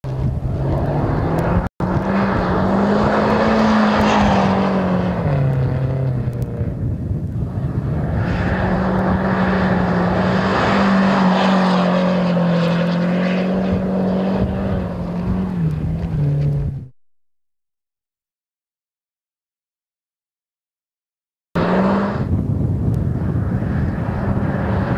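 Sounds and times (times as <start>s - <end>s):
rally car engine running hard: 0.1s - 16.8s.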